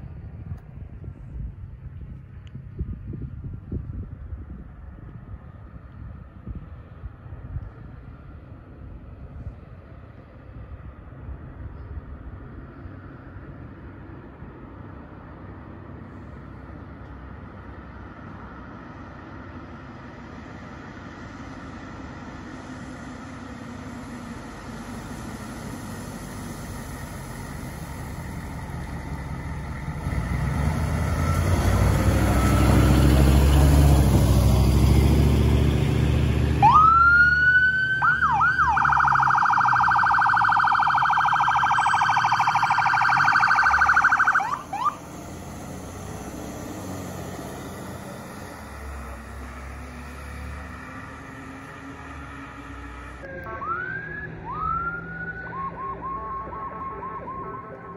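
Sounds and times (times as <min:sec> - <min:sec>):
fire engine rumble: 0:00.0 - 0:57.9
electronic siren wailing: 0:36.6 - 0:45.0, 0:53.3 - 0:57.9.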